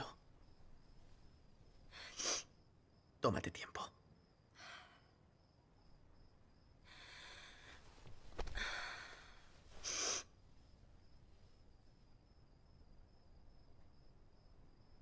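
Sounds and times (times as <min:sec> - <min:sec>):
woman breathing: 0:01.8 - 0:02.5, 0:04.5 - 0:05.3, 0:06.8 - 0:10.4.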